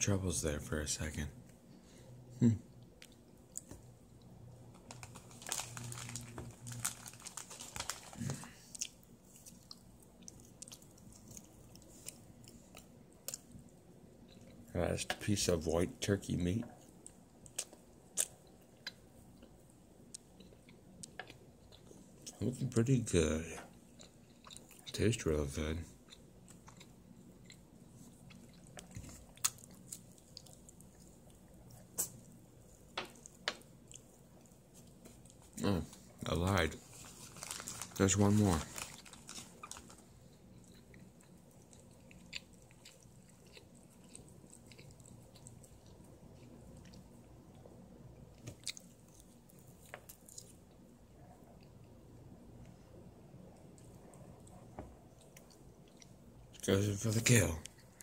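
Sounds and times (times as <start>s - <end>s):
cat chewing food: 25.9s - 36.1s, 36.9s - 52.0s
cat chewing meat: 38.8s - 47.7s.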